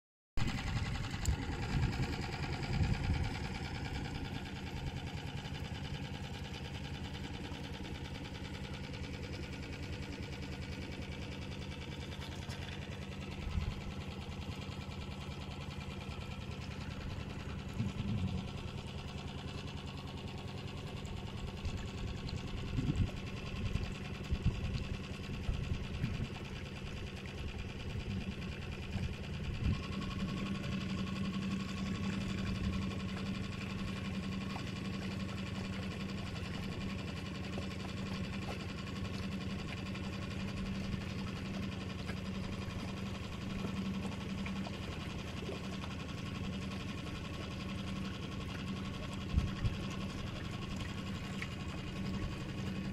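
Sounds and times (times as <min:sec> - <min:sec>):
small motor humming: 0:16.1 - 0:52.9.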